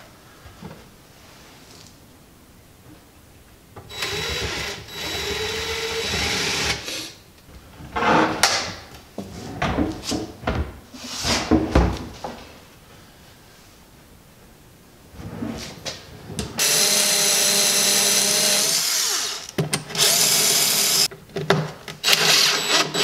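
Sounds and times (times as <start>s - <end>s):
cordless drill running: 3.9s - 6.9s, 16.6s - 21.1s, 22.0s - 23.0s
drawers rolling on metal slides: 15.2s - 16.6s.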